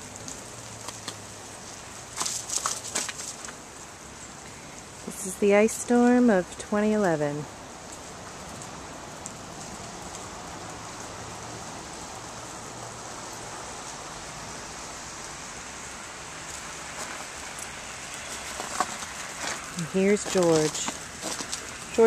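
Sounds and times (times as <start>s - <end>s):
rain on pavement and cars: 0.0s - 22.0s.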